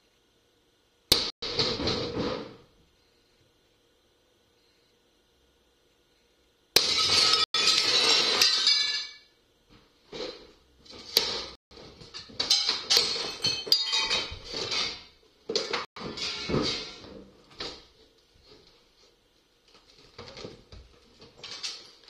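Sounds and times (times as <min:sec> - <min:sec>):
window glass shattering: 0:06.8 - 0:09.2
glass clinking and clattering: 0:06.8 - 0:09.3, 0:12.0 - 0:17.2.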